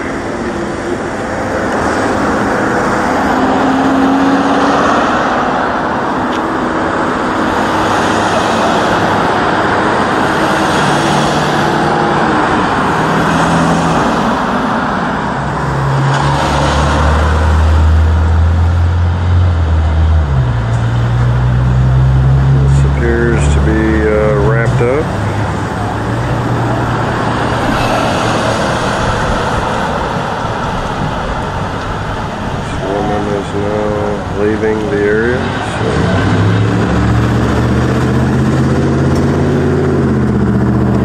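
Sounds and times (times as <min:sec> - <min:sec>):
cars driving along a street: 0:00.0 - 0:41.0
low engine hum close by: 0:00.0 - 0:41.0.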